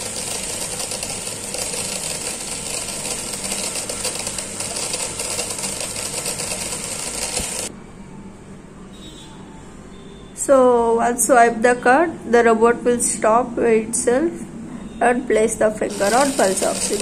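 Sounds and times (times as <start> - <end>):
gear motors buzzing rattle: 15.9 - 17.0.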